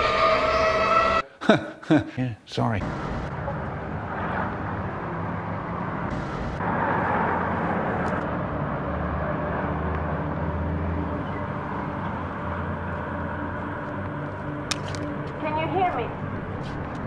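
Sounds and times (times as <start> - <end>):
low engine drone: 2.8 - 15.4
cars passing on road: 2.8 - 17.0.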